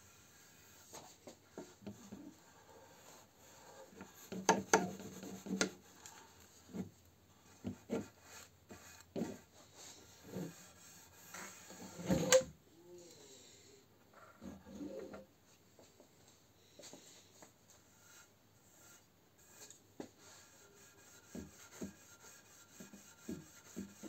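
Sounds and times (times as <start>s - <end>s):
sponge pad rubbing on wood: 1.9s - 5.9s, 7.6s - 12.0s, 17.9s - 24.0s.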